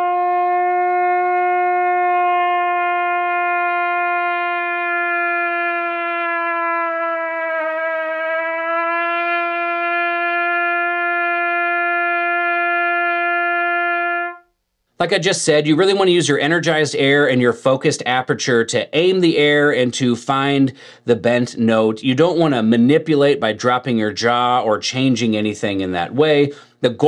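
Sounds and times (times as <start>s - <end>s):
trumpet holding long note: 0.0s - 14.5s.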